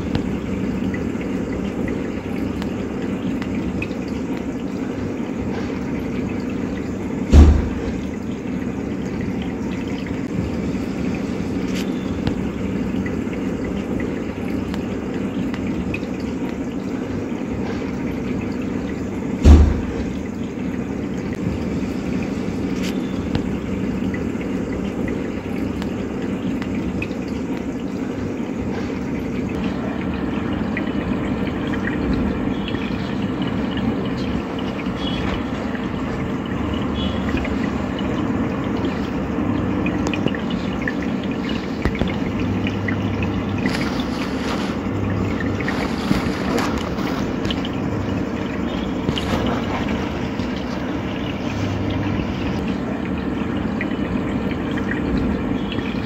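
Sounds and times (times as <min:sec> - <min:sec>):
low steady hum: 0:00.0 - 0:56.0
water running and trickling: 0:00.0 - 0:56.0
loud low thuds: 0:07.3 - 0:08.2.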